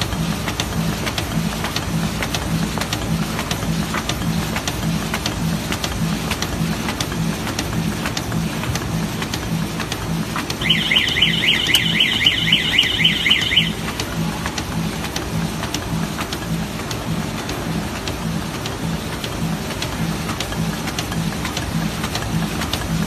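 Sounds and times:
warbling electronic alarm: 0:10.6 - 0:14.0.

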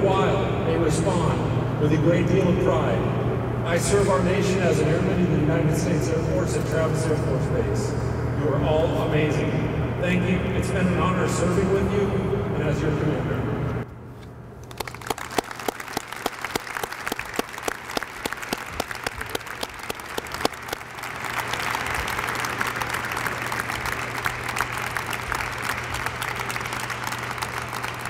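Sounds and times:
audience applauding: 0:14.6 - 0:28.0.

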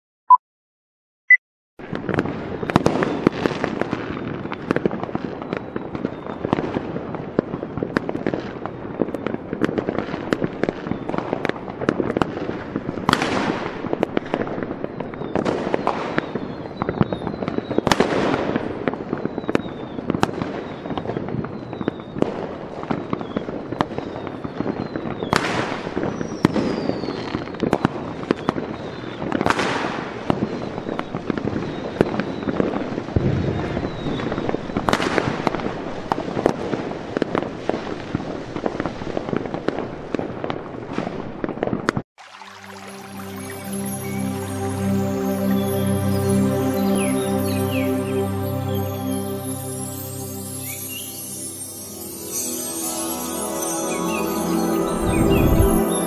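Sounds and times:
fireworks crackling and popping: 0:01.8 - 0:44.6, 0:49.7 - 0:54.9
falling firework whistles: 0:14.8 - 0:35.5.

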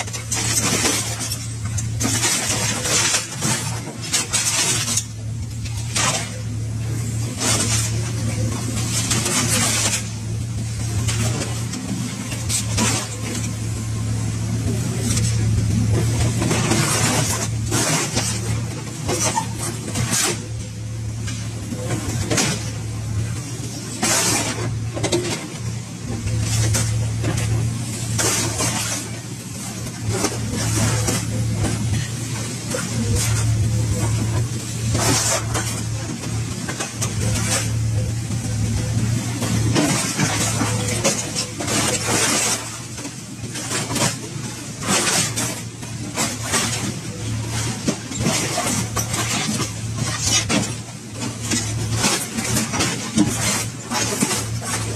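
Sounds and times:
excavator diesel engine running: 0:00.0 - 0:54.9
scrap metal clanking and scraping: 0:00.0 - 0:54.9
machine humming: 0:05.3 - 0:42.8.

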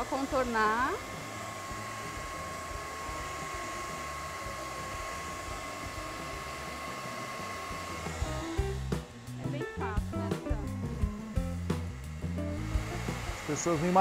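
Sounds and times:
hair dryer running: 0:00.0 - 0:14.0.

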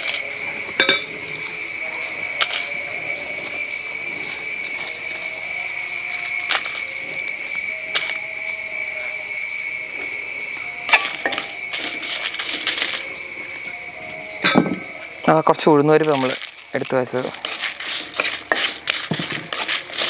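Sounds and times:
utensils clinking on steel pan: 0:00.0 - 0:01.2, 0:10.9 - 0:13.0, 0:14.4 - 0:15.0, 0:15.9 - 0:20.0
high-pitched drone: 0:00.0 - 0:20.0.

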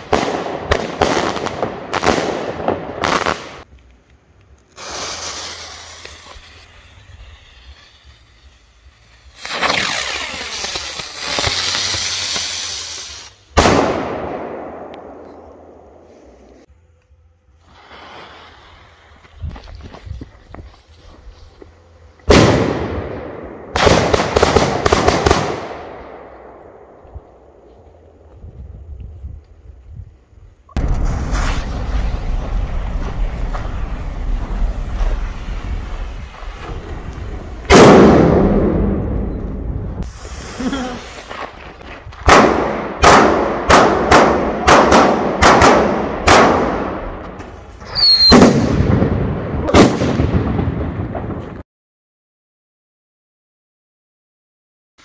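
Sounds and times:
firework cracks echoing: 0:00.0 - 0:03.7, 0:04.7 - 0:15.9, 0:22.3 - 0:27.1, 0:30.8 - 0:51.6
firework bang: 0:09.4 - 0:15.3, 0:22.3 - 0:26.3, 0:30.8 - 0:40.6, 0:41.2 - 0:51.6
short high whistle: 0:47.9 - 0:48.4.

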